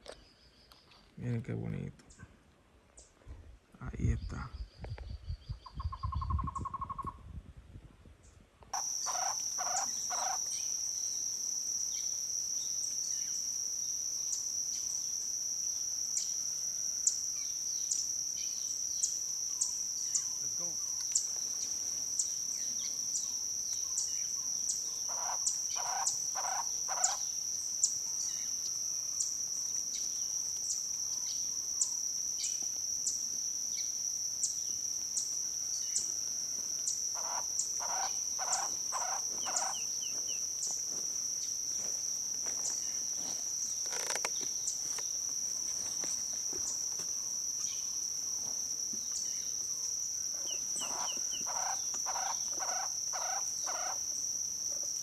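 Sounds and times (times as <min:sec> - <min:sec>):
bird repeating low notes: 0:08.8 - 0:11.2, 0:37.1 - 0:40.4
high-pitched insect drone: 0:08.8 - 0:55.0.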